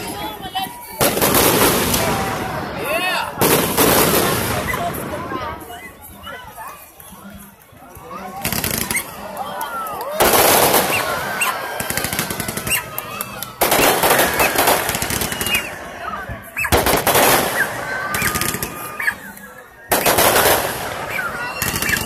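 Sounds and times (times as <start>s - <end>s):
fireworks bursts crackling: 0.0s - 5.6s, 8.4s - 9.3s, 10.1s - 19.3s, 19.9s - 22.0s.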